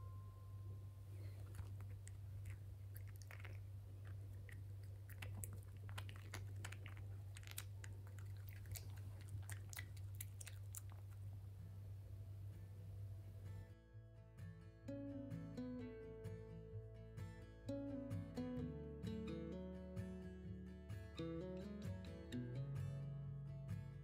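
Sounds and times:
steady low hum: 0.0 - 24.0
puppy chewing crunchy biscuit: 1.1 - 11.6
mouth clicks: 1.2 - 11.2.

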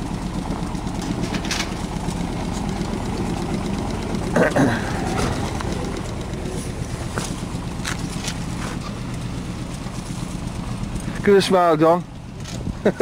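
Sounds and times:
diesel boat engine idling: 0.0 - 13.0.

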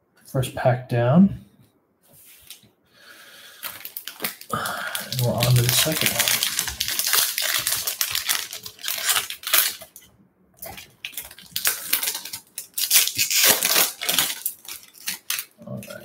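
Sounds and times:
foil wrapper tearing and crackling: 3.6 - 10.0, 10.6 - 16.0.

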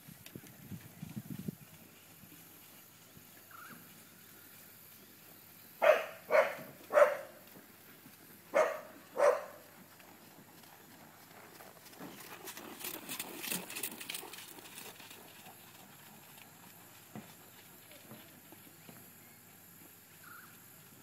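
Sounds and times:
dog barking: 5.8 - 7.4, 8.5 - 9.6.

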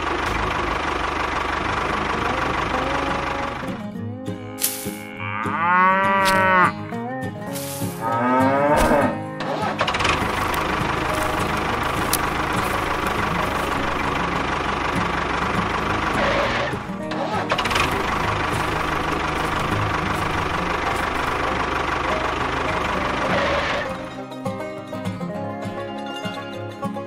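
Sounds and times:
tractor engine: 0.0 - 27.0
cow mooing: 4.4 - 9.3.

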